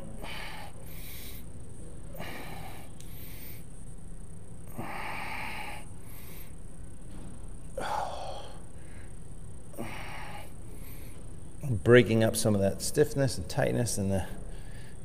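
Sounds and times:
person breathing slowly: 0.0s - 1.5s, 2.1s - 3.7s, 4.7s - 6.6s, 7.8s - 11.2s, 14.4s - 15.0s
low room hum: 0.0s - 15.0s.

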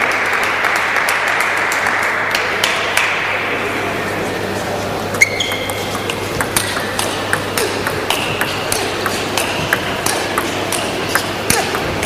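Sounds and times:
sports hall hum: 0.0s - 12.0s
table tennis ball clicking: 5.3s - 11.9s.

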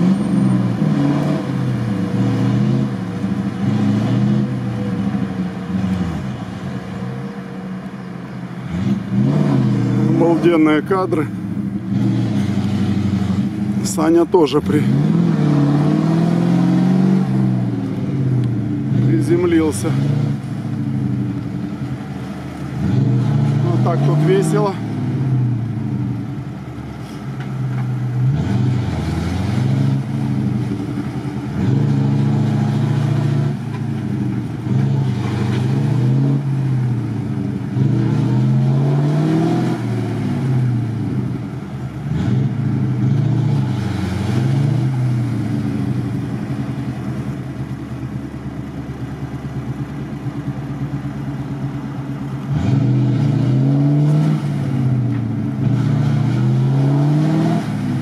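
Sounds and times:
truck engine revving: 0.0s - 58.0s.

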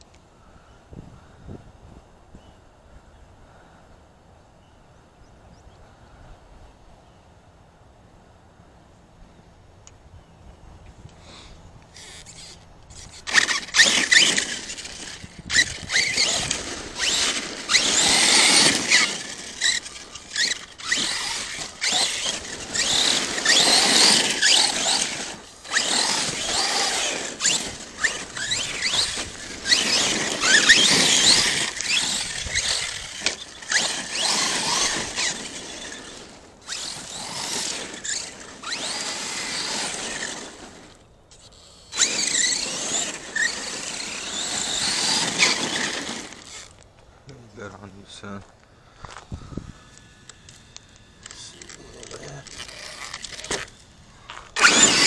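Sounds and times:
electric motor whining: 11.9s - 46.8s, 48.9s - 55.0s
tyres rushing on dirt and gravel: 12.9s - 41.0s, 41.9s - 55.0s.

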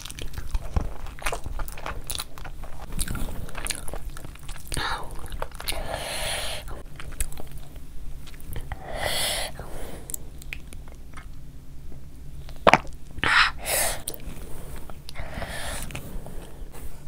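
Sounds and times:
chewing: 0.0s - 6.0s, 6.6s - 8.8s.

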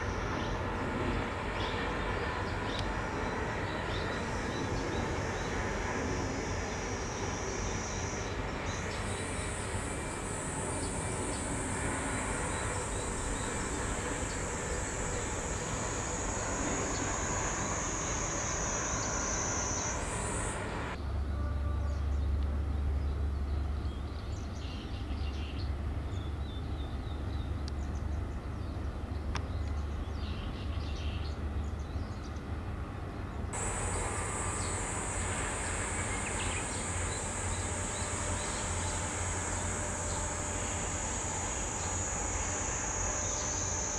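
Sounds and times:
thin high whine: 0.0s - 21.7s, 33.6s - 43.9s
distant harbour background noise: 0.0s - 43.9s.

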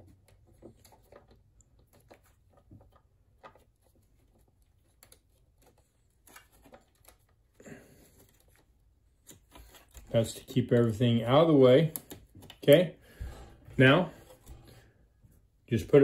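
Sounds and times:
hands rustling wiring: 0.0s - 15.9s
faint clicks of plastic connectors: 4.7s - 13.5s.

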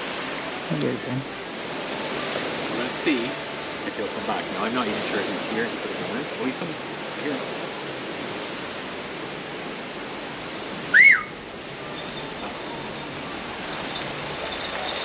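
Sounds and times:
recall whistle: 10.9s - 11.4s
faint tinkle of hawk bells: 11.7s - 15.0s.

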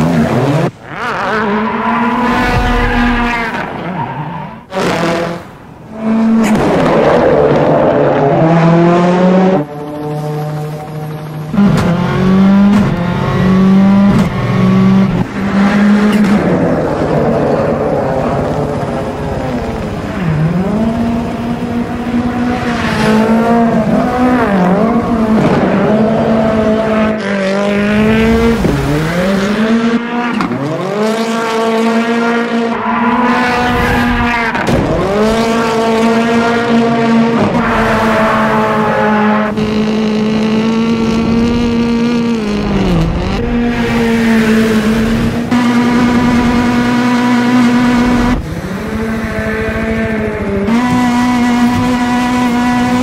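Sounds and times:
car engine revving hard: 11.6s - 53.0s.

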